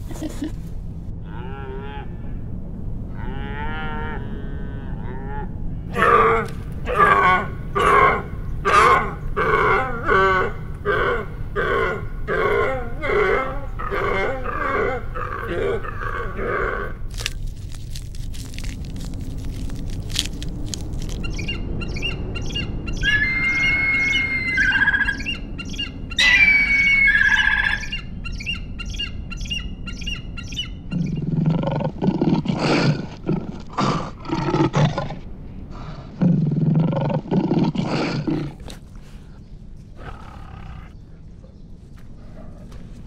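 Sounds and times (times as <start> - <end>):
birds chirping and whistling: 20.8 - 31.4.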